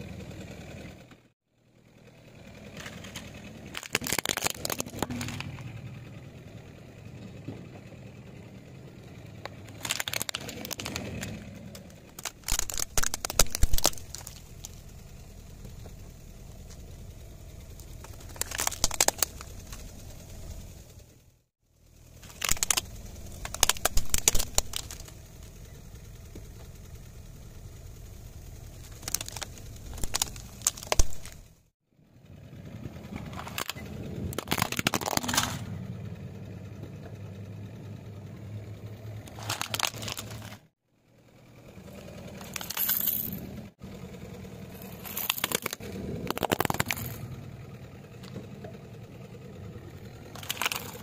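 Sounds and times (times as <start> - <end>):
car engine running low: 0.0 - 51.0
plastic toys cracking under tyre: 2.7 - 5.7, 9.4 - 14.9, 17.8 - 19.9, 22.1 - 25.4, 28.8 - 31.5, 33.2 - 35.7, 39.3 - 40.6, 42.3 - 43.5, 44.8 - 47.3, 50.2 - 51.0.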